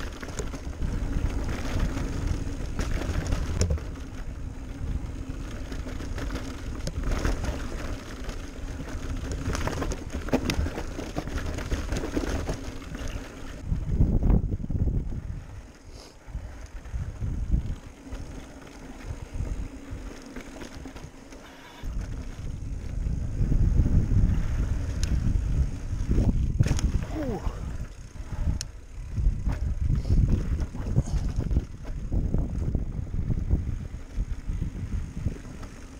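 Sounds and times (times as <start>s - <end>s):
tyres rattling over dirt and rocks: 0.0s - 13.7s
wind buffeting microphone: 0.0s - 20.1s, 21.8s - 35.9s.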